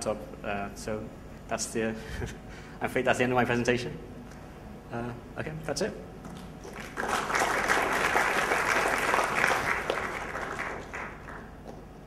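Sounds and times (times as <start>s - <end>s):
audience applauding: 6.6s - 11.6s.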